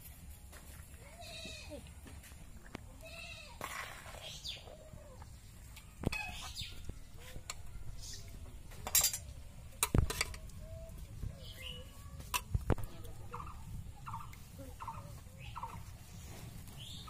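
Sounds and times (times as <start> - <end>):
metal ladle clinking on pot: 8.8 - 10.4
chickens clucking: 13.3 - 16.0.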